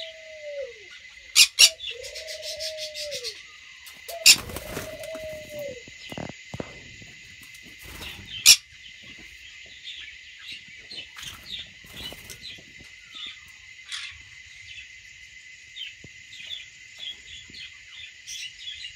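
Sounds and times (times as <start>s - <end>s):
parrots chirping: 0.9s - 3.4s, 8.0s - 8.8s.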